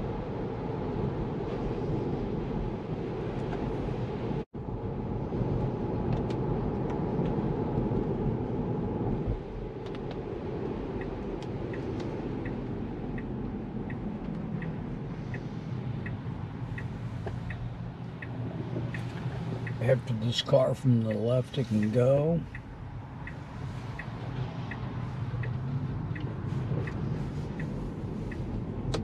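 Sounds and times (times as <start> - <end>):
turn signal ticking: 6.1 - 29.0.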